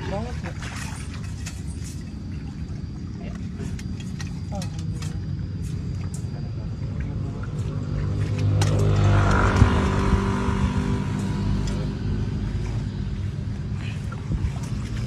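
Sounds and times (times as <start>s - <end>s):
vehicle engine passing: 7.3s - 13.6s.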